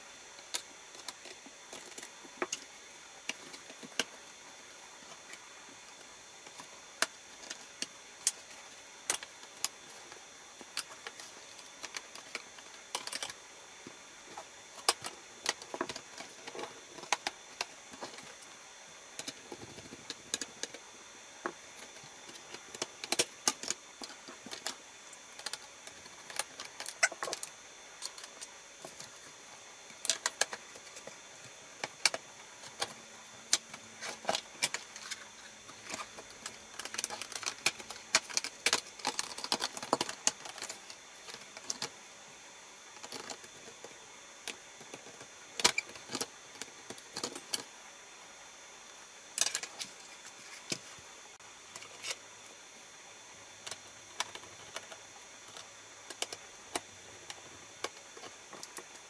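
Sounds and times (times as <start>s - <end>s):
tool tapping and scraping plastic: 30.0s - 42.0s.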